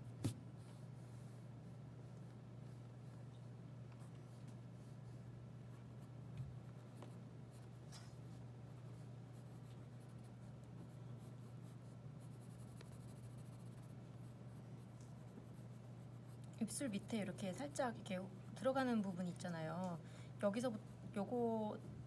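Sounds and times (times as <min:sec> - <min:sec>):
steady low hum: 0:00.0 - 0:22.0
pencil scratching on paper: 0:04.3 - 0:18.9.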